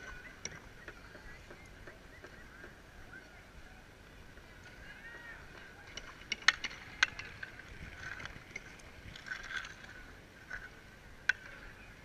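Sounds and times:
low steady background hiss: 0:00.0 - 0:12.0
hockey sticks and pucks clacking: 0:05.5 - 0:11.8.

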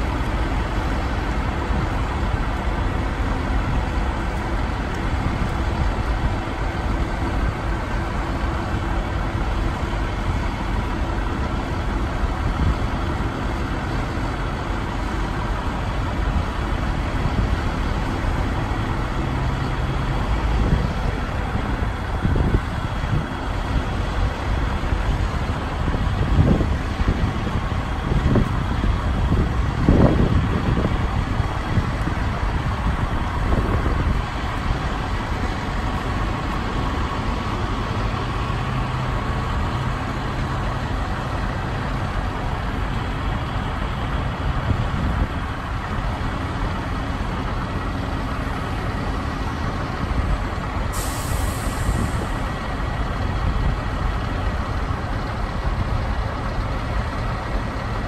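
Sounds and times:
heavy diesel engines running: 0:00.0 - 0:58.0
air brake hiss: 0:50.9 - 0:52.5.

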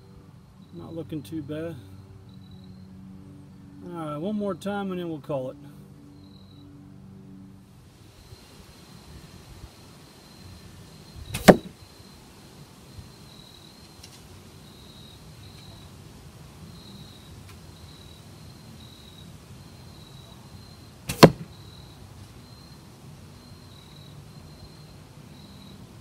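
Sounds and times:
arrow thwacking foam target: 0:11.3 - 0:11.8, 0:21.1 - 0:21.5.

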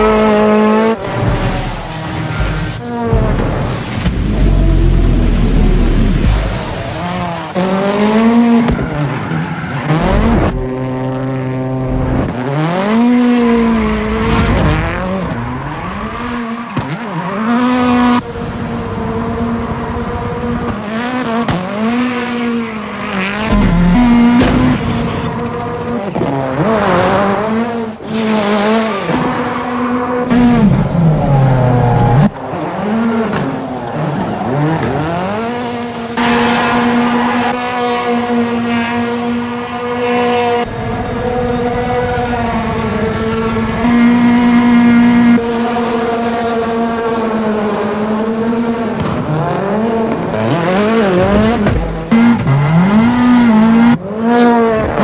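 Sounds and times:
rally car engine revving: 0:00.0 - 0:55.0.

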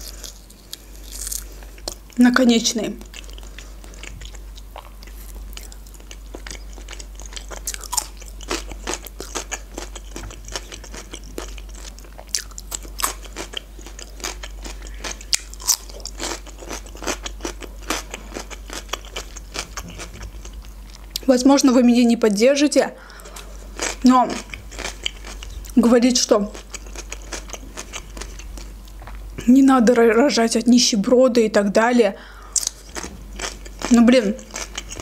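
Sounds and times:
crunching cucumber: 0:00.0 - 0:02.1, 0:03.0 - 0:21.3
chewing fish: 0:03.0 - 0:21.3, 0:26.5 - 0:29.2, 0:32.6 - 0:35.0.

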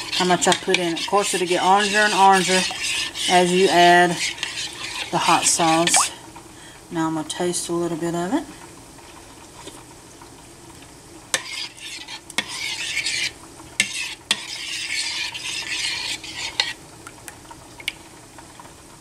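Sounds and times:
liquid swishing: 0:00.0 - 0:06.2, 0:11.4 - 0:16.8.

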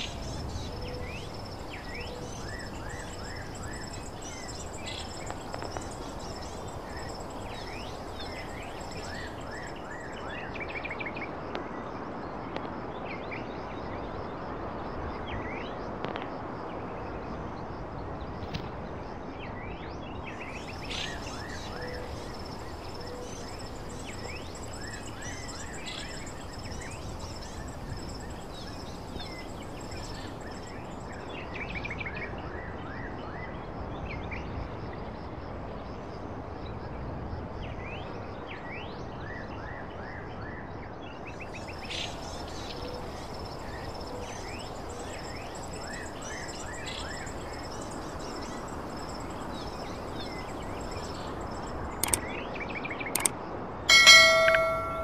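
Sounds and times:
high insect drone: 0:00.0 - 0:10.7, 0:20.3 - 0:31.8, 0:41.4 - 0:52.2
sharp clicks: 0:52.0 - 0:52.3, 0:53.2 - 0:55.0
birds chirping: 0:53.9 - 0:55.0.

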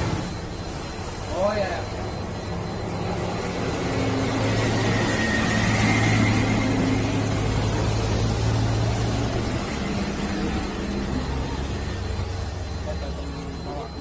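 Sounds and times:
wide wash of noise: 0:00.0 - 0:13.3.

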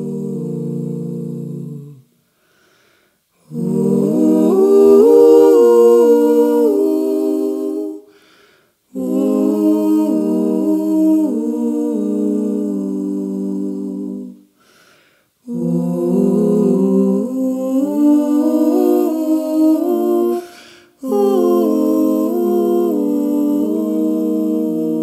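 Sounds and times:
women singing in harmony: 0:00.0 - 0:02.1, 0:03.5 - 0:08.1, 0:08.9 - 0:14.5, 0:15.5 - 0:25.0.

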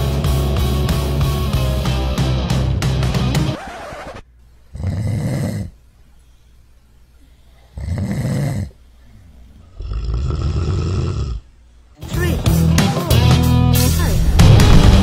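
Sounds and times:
dog snoring loudly: 0:04.7 - 0:05.8, 0:07.8 - 0:08.8, 0:09.8 - 0:11.4.

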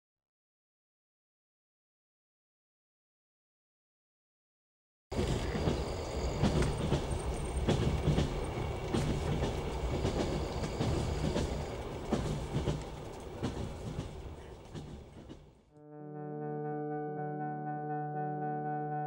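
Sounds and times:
train rumbling: 0:05.1 - 0:15.7
wheels knocking over rails: 0:05.2 - 0:15.6.

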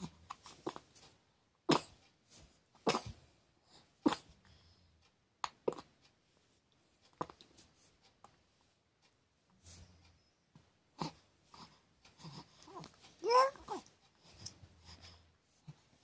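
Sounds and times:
baby making breathy mouth sounds: 0:11.0 - 0:15.2.

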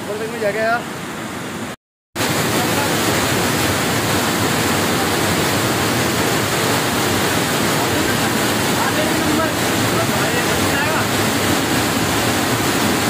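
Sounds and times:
waterfall rushing and splashing: 0:00.0 - 0:13.0.

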